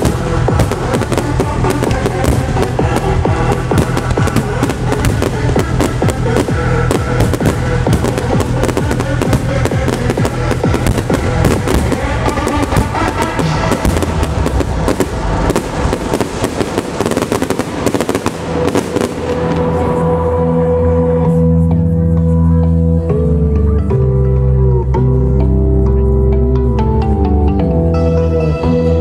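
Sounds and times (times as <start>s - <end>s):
fireworks bursting and crackling: 0.0s - 20.2s
loud trance music: 0.0s - 22.1s.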